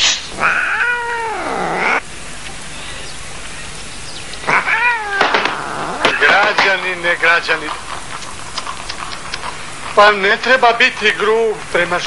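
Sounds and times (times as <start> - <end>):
cat meowing: 0.3 - 2.0, 4.4 - 6.3.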